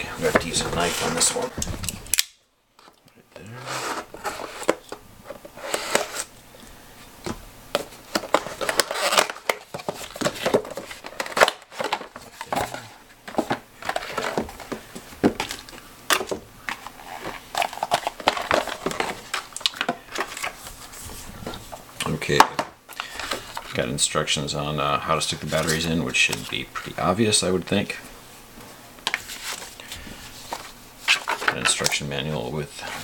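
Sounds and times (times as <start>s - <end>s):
plastic packaging crinkling: 8.0s - 20.6s.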